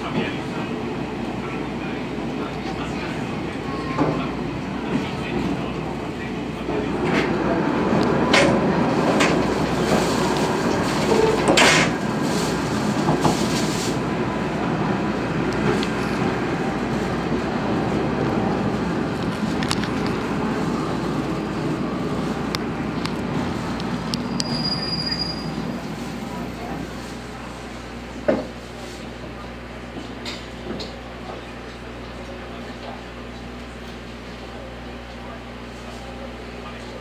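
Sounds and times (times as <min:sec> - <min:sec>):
train wheels rumbling on rail: 0:00.0 - 0:37.0
high squeal: 0:24.2 - 0:25.7.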